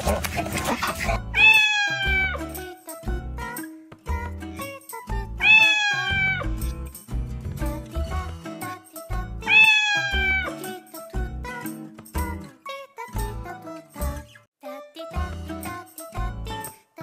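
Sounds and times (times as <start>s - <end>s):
cat meowing: 1.4s - 2.4s, 5.4s - 6.4s, 9.5s - 10.5s.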